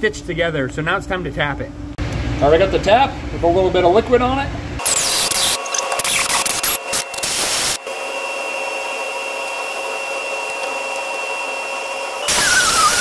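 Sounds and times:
power tool whining: 4.8s - 13.0s.

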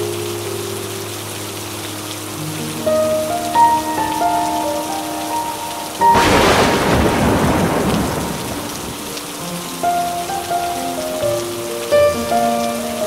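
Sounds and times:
soft background music: 0.0s - 8.2s, 8.8s - 13.0s
heavy rain: 0.0s - 13.0s
thunderclap rumbling: 6.0s - 9.2s.

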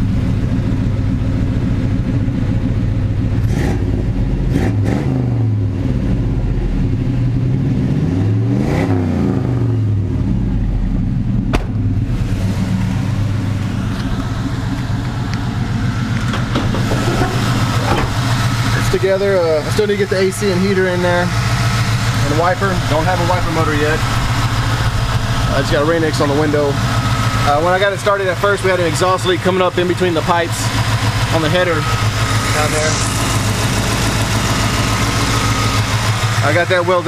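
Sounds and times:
car engine idling and revving: 0.0s - 37.0s.

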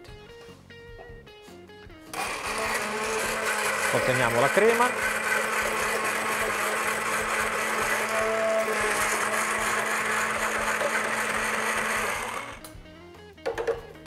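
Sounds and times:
stick blender running: 2.1s - 12.7s.

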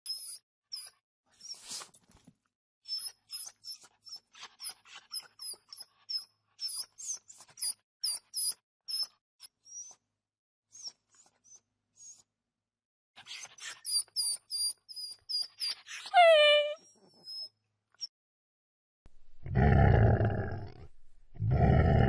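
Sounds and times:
high-pitched animal squeaks and yelps: 0.1s - 1.8s, 2.8s - 10.0s, 13.2s - 18.1s.

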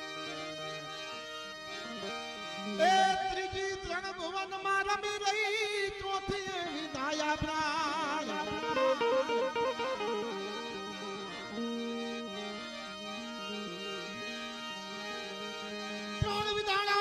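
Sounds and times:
harmonium and keyboard melody: 0.0s - 17.0s
man singing: 2.6s - 11.2s, 16.1s - 17.0s.

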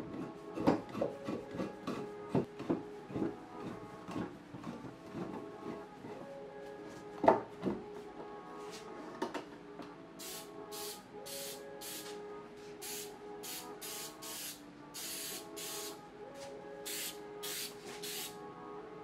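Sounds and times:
aerosol spray bursts: 12.8s - 16.0s, 16.9s - 18.4s.

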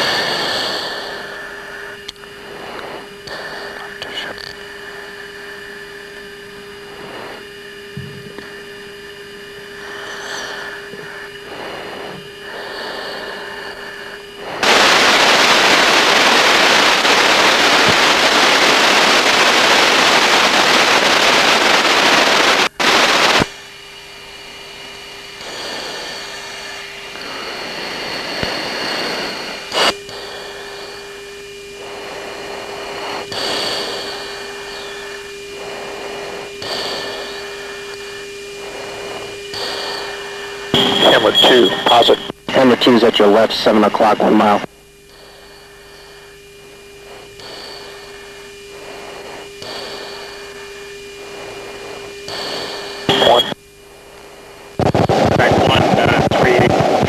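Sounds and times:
static hiss burst: 0.0s - 57.0s
steady hum: 0.0s - 57.0s
faint constant tone: 22.8s - 54.8s.

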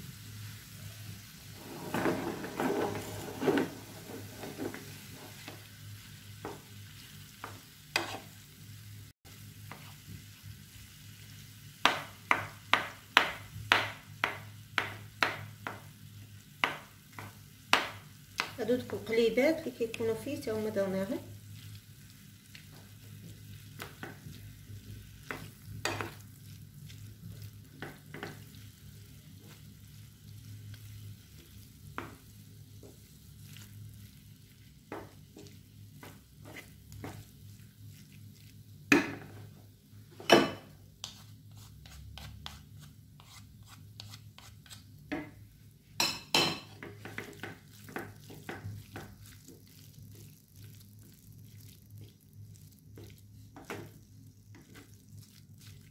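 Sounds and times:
faint sizzle: 0.0s - 55.9s
spatula scraping and knocking pan: 1.6s - 5.7s, 6.4s - 6.7s, 7.3s - 8.4s, 22.5s - 28.6s, 34.8s - 38.1s, 46.0s - 50.4s, 53.0s - 55.0s.

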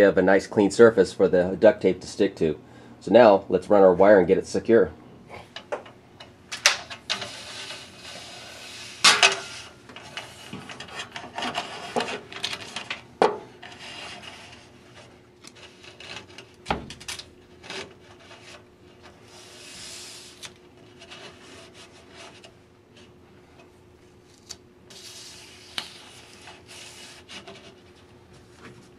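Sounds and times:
duct tape ripping off roll: 19.3s - 20.6s.

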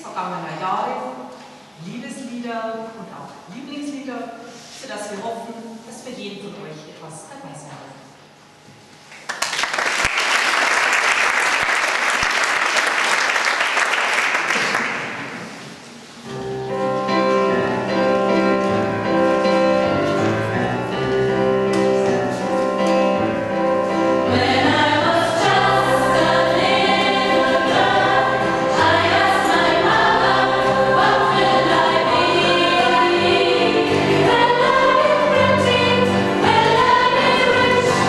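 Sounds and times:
audience applause: 9.2s - 15.3s
choir singing: 24.0s - 38.0s.

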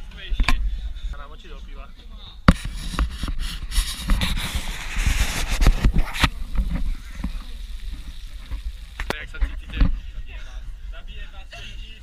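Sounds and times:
camera handling rubbing and scraping: 2.5s - 10.0s.

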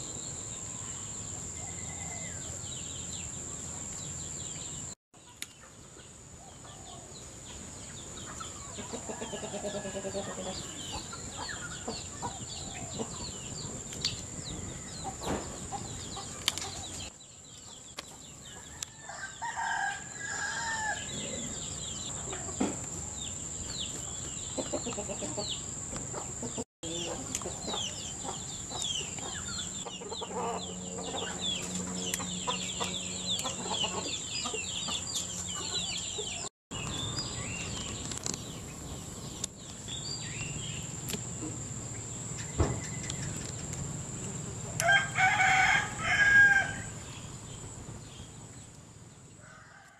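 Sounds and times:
rooster crowing: 1.6s - 2.6s, 18.6s - 21.6s, 44.7s - 47.0s, 49.4s - 49.9s
chickens clucking: 5.2s - 17.1s, 21.1s - 23.2s, 23.9s - 37.0s
high insect drone: 18.4s - 49.9s.

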